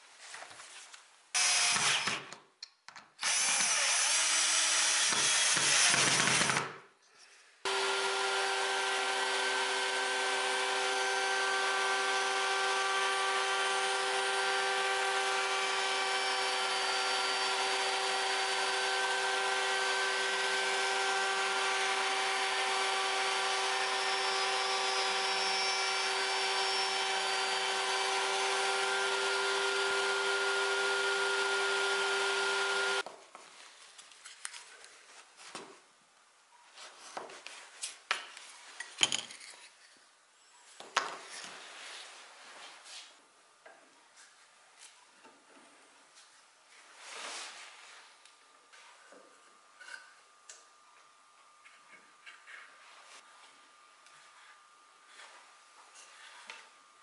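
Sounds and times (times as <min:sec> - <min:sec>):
cordless drill driving screws: 0:01.4 - 0:02.3, 0:03.2 - 0:06.7
router table humming: 0:07.7 - 0:33.0.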